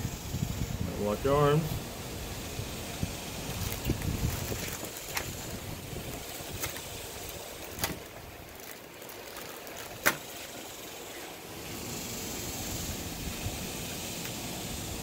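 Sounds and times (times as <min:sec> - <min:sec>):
background hiss: 0:00.0 - 0:15.0
plastic bag crinkling: 0:03.4 - 0:10.9.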